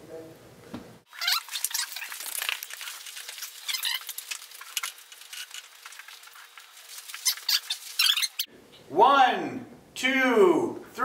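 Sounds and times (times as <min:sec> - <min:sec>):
nylon fabric rustling: 0:01.1 - 0:08.5.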